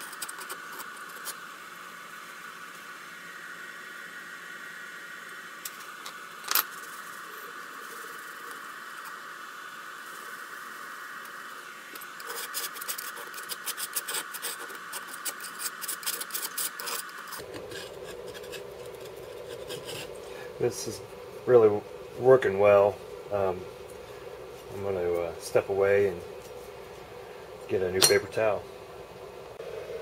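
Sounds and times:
steady background hum: 0.0s - 30.0s
rubbing and scraping strokes: 12.0s - 20.2s.

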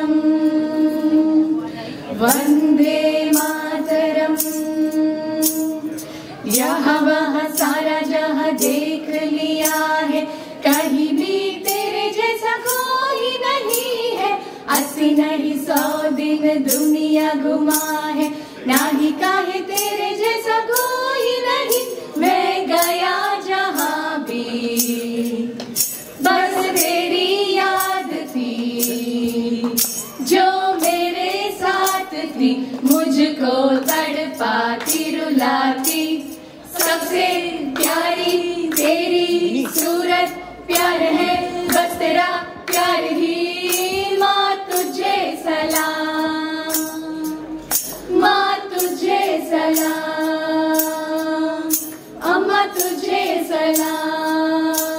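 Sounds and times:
women singing together: 0.0s - 54.9s
steady percussion beat: 18.7s - 54.1s.

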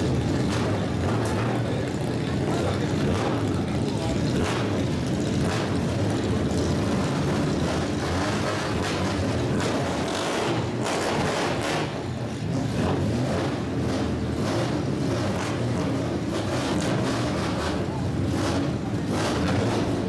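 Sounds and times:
car exhaust rumbling: 0.0s - 20.0s.

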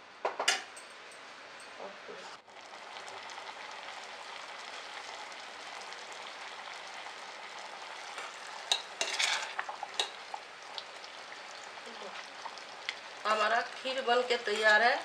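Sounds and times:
pot bubbling: 1.8s - 15.0s
spoon scraping a pot: 8.7s - 10.2s, 14.4s - 14.9s.

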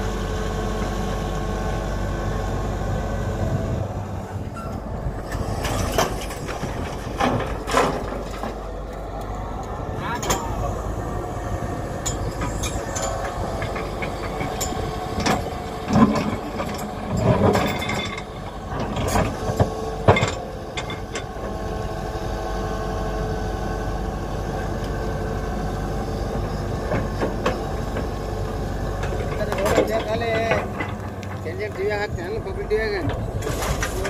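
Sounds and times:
excavator diesel engine running: 0.0s - 34.0s
bucket scraping stony earth: 33.4s - 34.0s.

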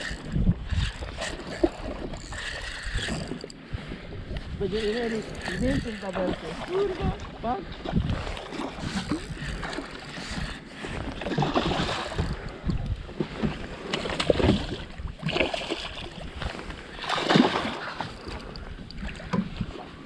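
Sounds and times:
water splashing: 4.6s - 10.1s, 17.0s - 18.5s
fish thrashing at water surface: 17.0s - 18.2s.

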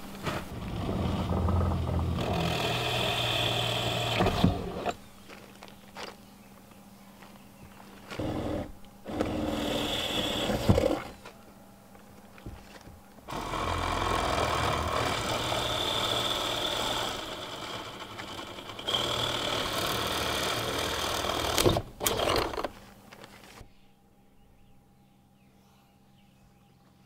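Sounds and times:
siding cracking: 0.2s - 5.0s, 13.3s - 23.6s
power tool running: 0.5s - 5.0s, 8.2s - 11.1s, 13.3s - 22.7s.

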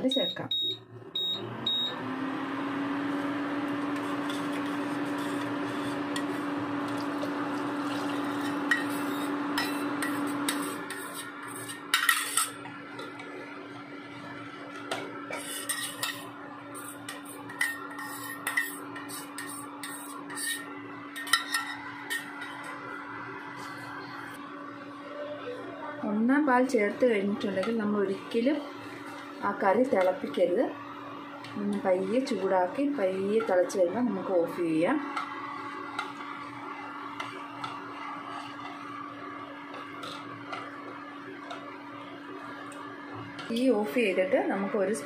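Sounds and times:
electric motor hum: 0.9s - 21.2s
ladle clinking and scraping pot: 3.8s - 7.1s, 7.8s - 13.3s, 14.8s - 22.8s, 35.1s - 39.0s, 39.7s - 40.8s.

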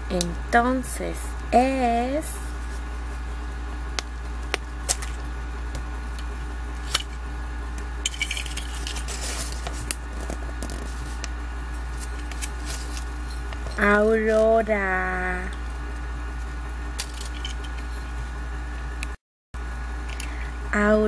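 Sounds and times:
steady low hum: 0.0s - 21.0s
paper crinkling: 8.4s - 13.5s.

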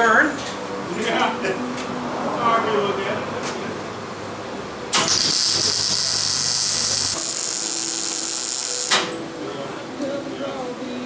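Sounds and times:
crackling hiss of welding arc: 5.0s - 9.1s.

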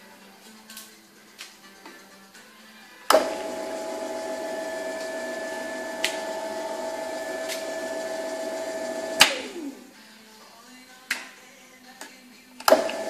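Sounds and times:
drill press motor whine: 3.1s - 9.9s, 12.7s - 13.0s.

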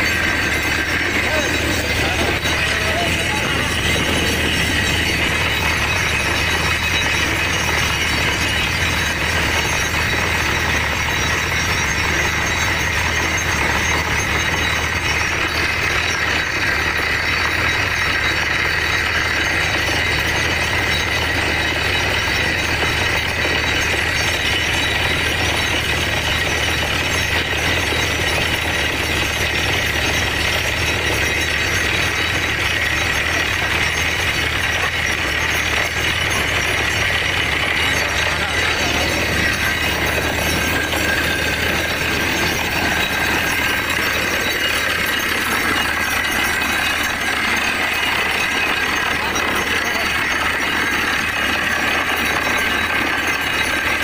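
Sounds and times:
drilling rig engine running: 0.0s - 54.0s.

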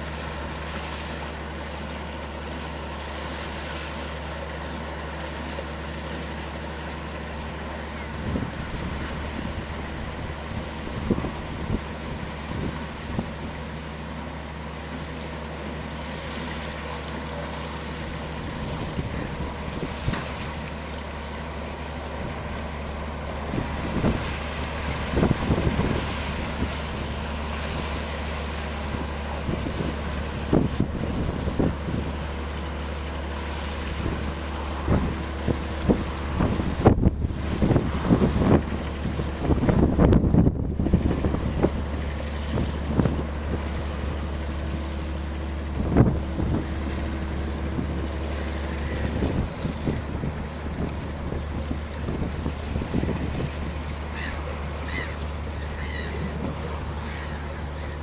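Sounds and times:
ship engine droning: 0.0s - 58.0s
wind buffeting microphone: 7.9s - 13.6s, 18.1s - 21.0s, 22.0s - 32.8s, 33.8s - 58.0s.

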